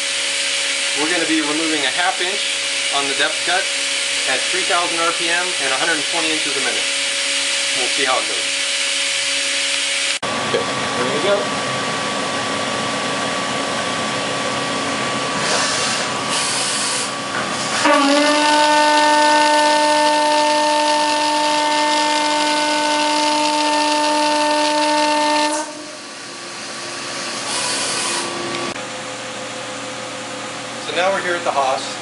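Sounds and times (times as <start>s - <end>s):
coolant spray hissing: 0.0s - 10.1s, 15.3s - 18.0s
milling machine cutting tone: 0.0s - 11.5s, 15.1s - 28.8s.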